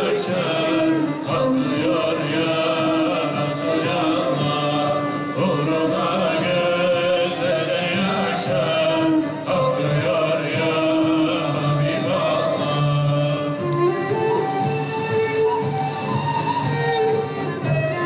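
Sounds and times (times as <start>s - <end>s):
instruments playing: 0.0s - 10.7s
choir chanting a hymn: 0.0s - 14.4s.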